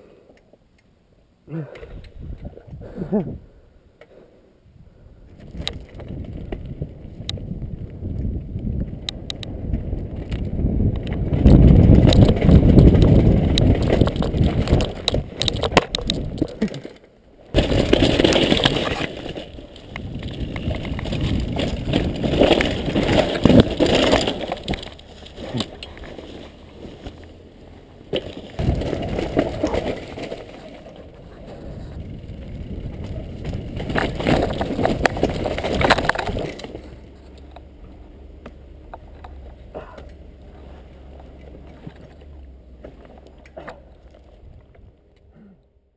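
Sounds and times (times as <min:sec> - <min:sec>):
wind buffeting microphone: 0:01.9 - 0:03.6, 0:04.7 - 0:16.6, 0:19.5 - 0:25.7, 0:31.0 - 0:37.1
mountain bike rattling over rocks: 0:05.2 - 0:45.2
bike crashing into branches: 0:11.2 - 0:37.1.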